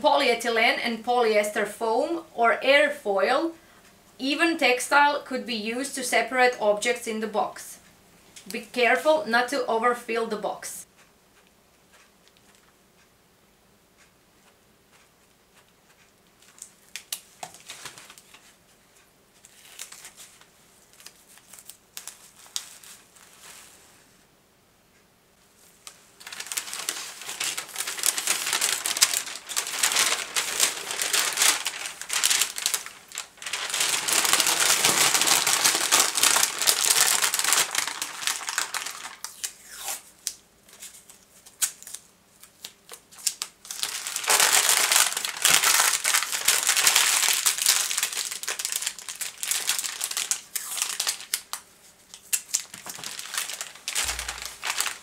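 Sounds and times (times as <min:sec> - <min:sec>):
bubble wrap and paper crinkling: 0:16.0 - 0:18.6, 0:19.4 - 0:24.0, 0:25.8 - 0:55.0.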